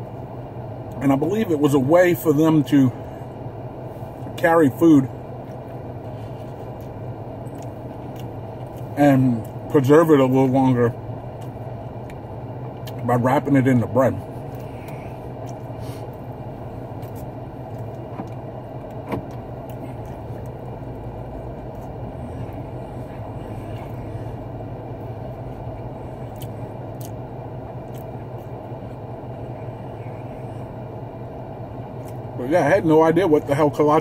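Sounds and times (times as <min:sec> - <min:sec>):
car cabin low hum: 0:00.0 - 0:34.0
soft chewing: 0:05.4 - 0:09.6, 0:11.3 - 0:13.0, 0:14.3 - 0:16.2, 0:16.9 - 0:19.0, 0:19.6 - 0:30.7.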